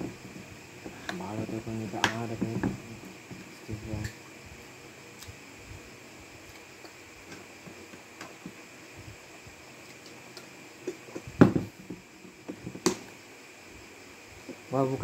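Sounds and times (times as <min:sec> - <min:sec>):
knocks on a table: 0:11.4 - 0:13.0.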